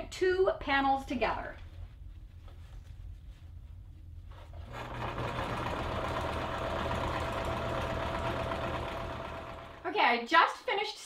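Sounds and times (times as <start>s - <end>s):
electric sewing machine humming: 4.6s - 9.9s.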